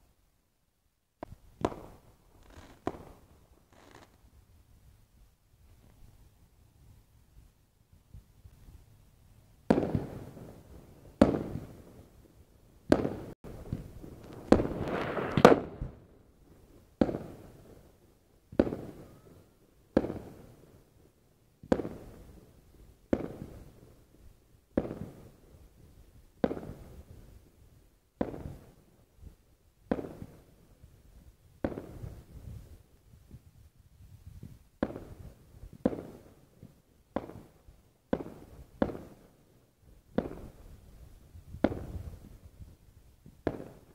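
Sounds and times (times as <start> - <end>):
fireworks bursting: 1.2 - 4.3, 9.6 - 12.1, 12.8 - 17.9, 23.1 - 23.8, 34.4 - 39.2, 40.1 - 43.9.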